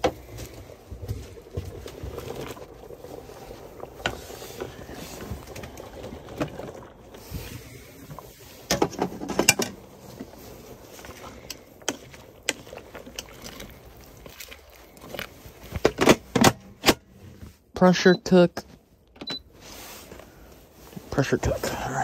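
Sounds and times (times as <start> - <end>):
cookware and utensils clattering: 8.7 - 9.8.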